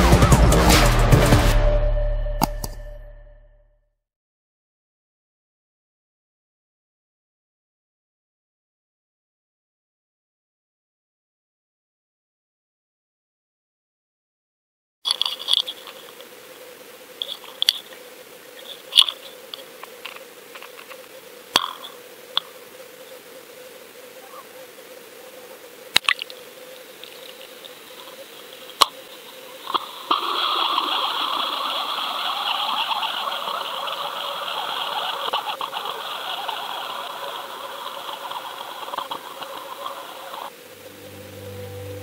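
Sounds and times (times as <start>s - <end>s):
hissing rush of water: 24.7s - 42.0s.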